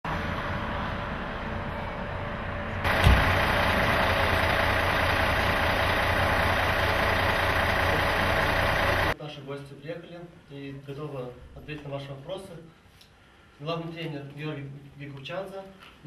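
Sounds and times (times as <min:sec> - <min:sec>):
bus engine idling: 0:00.1 - 0:09.2
short thump: 0:02.9 - 0:03.4.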